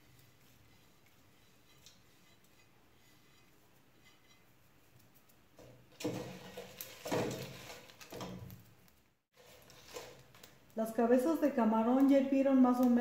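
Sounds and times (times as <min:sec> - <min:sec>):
wooden spoon stirring in pot: 0:00.0 - 0:08.5, 0:09.3 - 0:10.8.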